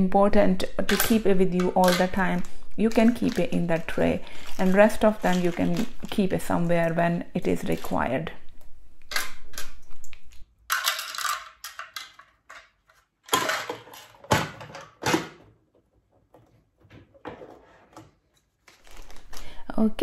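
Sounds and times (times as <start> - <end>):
plastic tray and tools rattling: 0.8 - 8.0, 10.7 - 15.4.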